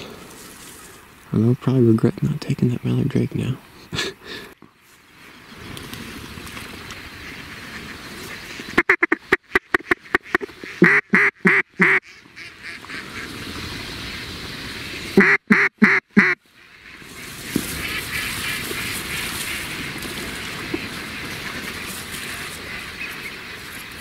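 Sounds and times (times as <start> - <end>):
flock of ducks din: 6.9 - 24.0
duck quacks: 7.2 - 13.3, 15.2 - 19.8.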